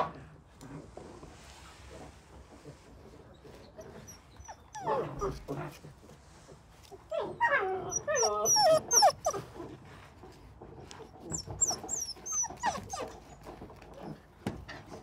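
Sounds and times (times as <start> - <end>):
puppies whining: 3.4 - 5.6, 7.0 - 9.9, 11.0 - 14.2.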